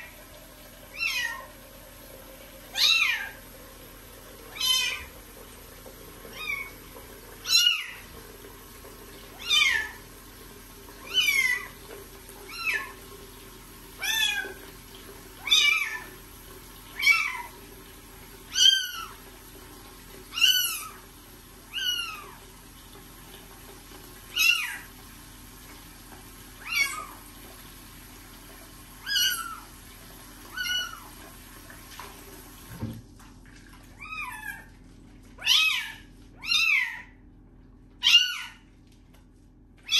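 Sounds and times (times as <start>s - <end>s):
kitten meowing: 35.4s - 37.1s, 38.0s - 38.6s.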